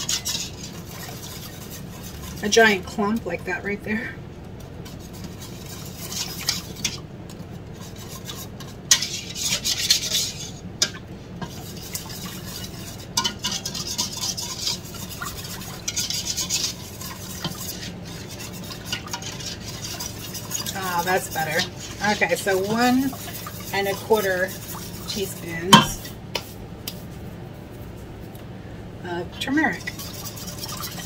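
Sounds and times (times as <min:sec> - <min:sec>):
utensil scraping powder: 0:00.0 - 0:02.8, 0:07.8 - 0:10.6, 0:11.4 - 0:28.0, 0:29.4 - 0:31.0.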